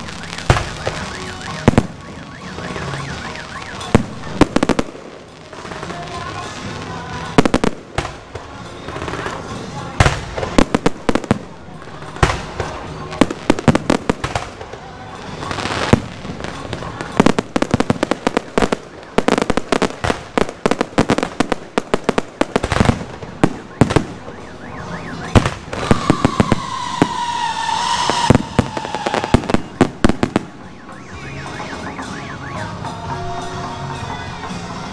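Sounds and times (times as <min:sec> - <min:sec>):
fireworks bangs and crackling: 0:00.0 - 0:34.9
high tone sliding downward: 0:23.6 - 0:34.9.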